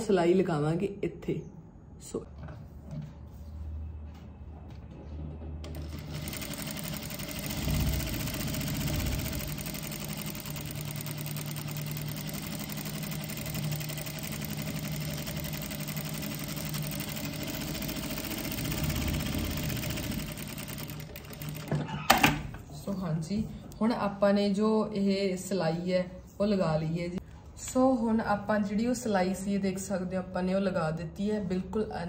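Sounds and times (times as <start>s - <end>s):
sewing machine running: 5.7s - 22.3s.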